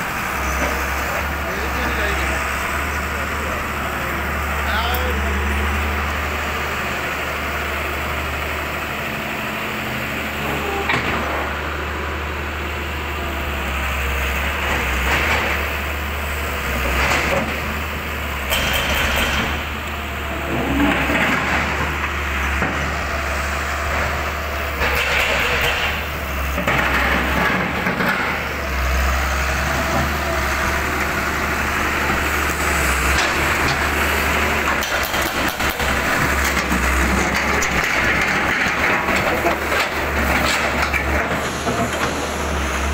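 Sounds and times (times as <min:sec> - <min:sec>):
diesel engine humming: 0:00.0 - 0:42.9
bursts of clatter: 0:20.4 - 0:23.0, 0:33.0 - 0:42.2.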